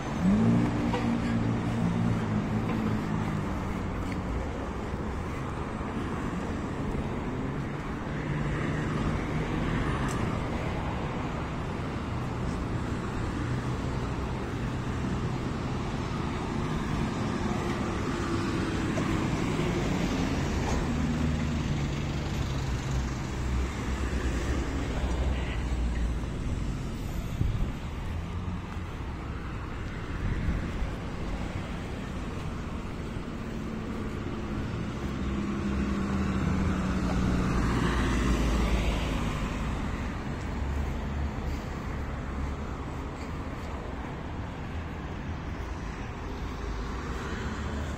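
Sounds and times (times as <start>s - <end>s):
road traffic passing: 0.0s - 47.9s.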